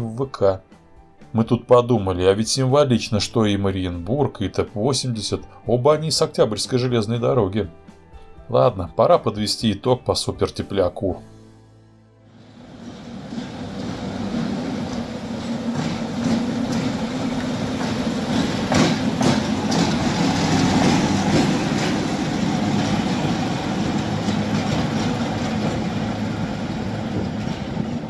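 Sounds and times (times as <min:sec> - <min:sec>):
diesel locomotive engine droning: 0:12.3 - 0:28.0
wheel clicks over rails: 0:12.7 - 0:28.0.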